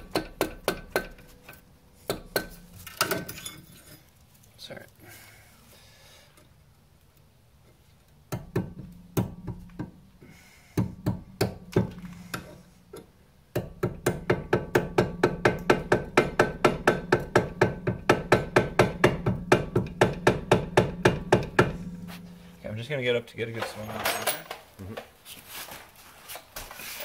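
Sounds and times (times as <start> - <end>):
hammer striking metal chisel: 0.0 - 3.7, 13.5 - 22.6.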